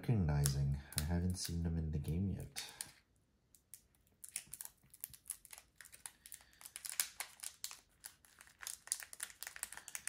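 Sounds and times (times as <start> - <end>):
foil wrapper crinkling: 3.9 - 10.0.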